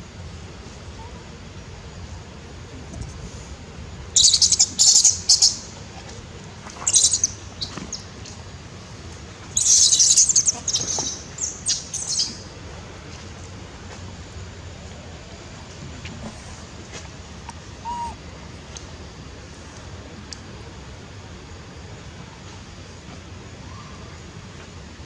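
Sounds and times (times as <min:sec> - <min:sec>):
monkeys screaming shrilly: 0:17.8 - 0:18.2.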